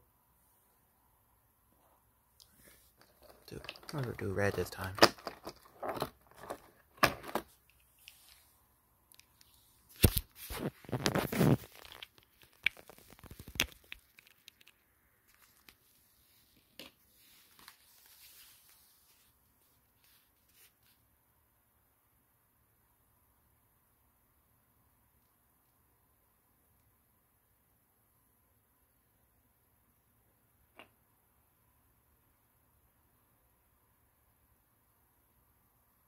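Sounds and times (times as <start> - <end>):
plastic and paper rustling: 3.0 - 8.5, 10.0 - 14.7, 15.3 - 16.6, 17.2 - 19.4.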